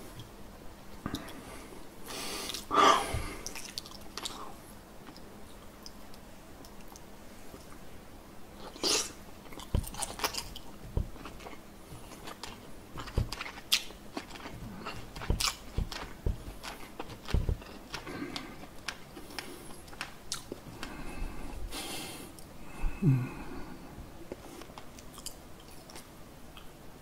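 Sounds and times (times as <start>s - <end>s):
crackling chews: 2.4s - 7.8s, 8.6s - 21.1s, 24.3s - 26.8s
wet chewing and lip smacking: 3.4s - 4.4s, 8.8s - 21.0s.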